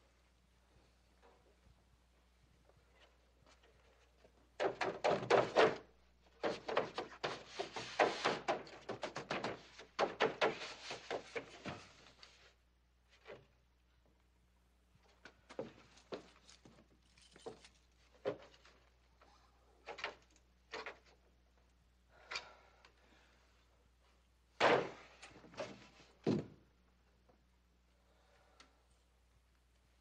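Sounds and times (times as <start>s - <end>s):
knocks and scrapes: 3.0s - 12.5s.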